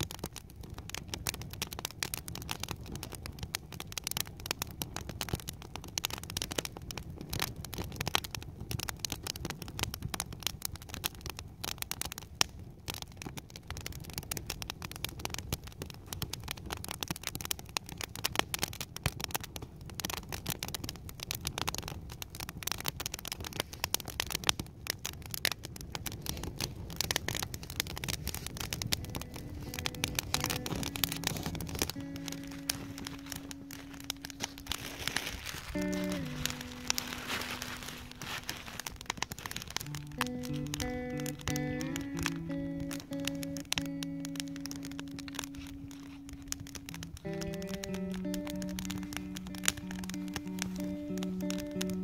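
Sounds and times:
campfire crackling and popping: 0.0 - 52.0.

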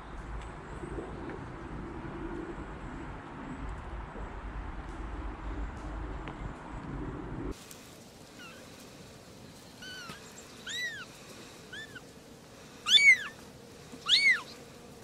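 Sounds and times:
kittens mewing: 9.8 - 12.1, 12.8 - 14.7.

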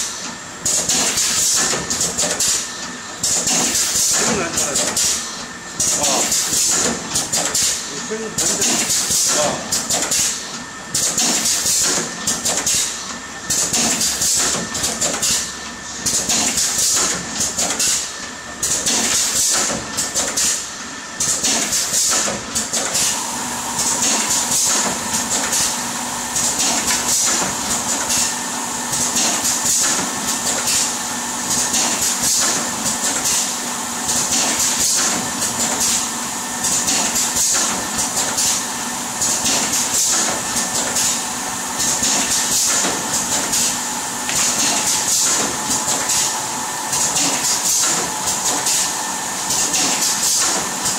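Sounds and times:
steady mechanical hum: 0.0 - 50.9
machine clacking: 28.9 - 36.0, 41.8 - 48.9, 49.5 - 50.9.

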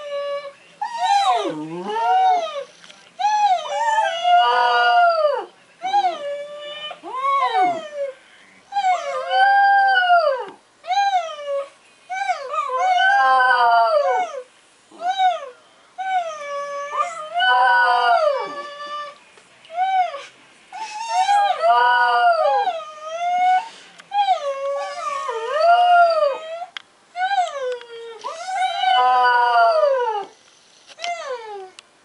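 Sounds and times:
dog howling: 0.0 - 8.2, 16.1 - 19.2, 21.0 - 30.3.

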